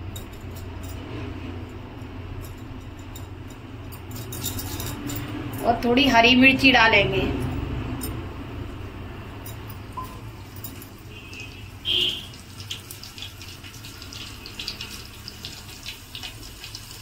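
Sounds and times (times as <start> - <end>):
chillies sizzling in hot oil: 11.3 - 17.0.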